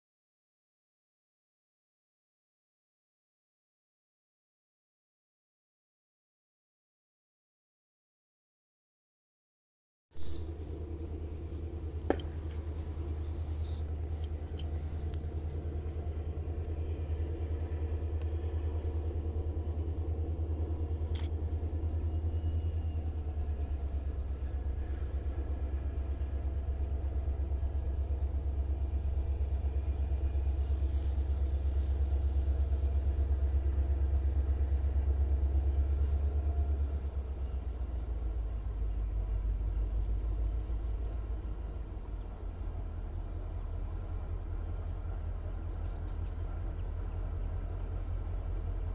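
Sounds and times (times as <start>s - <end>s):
faint high chirps: 39.6s - 47.5s.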